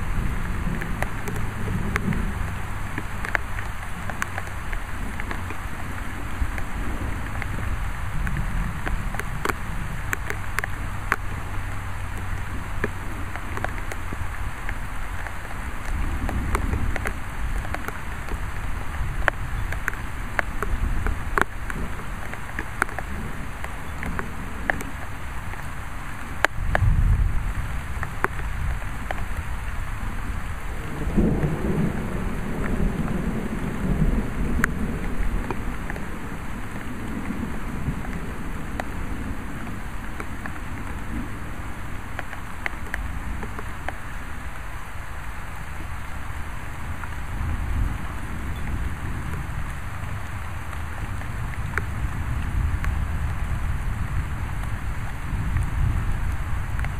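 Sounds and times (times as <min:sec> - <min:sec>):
rain falling: 0:00.0 - 0:56.9
raindrops tapping close by: 0:00.0 - 0:56.9
thunder rumbling: 0:00.0 - 0:56.9.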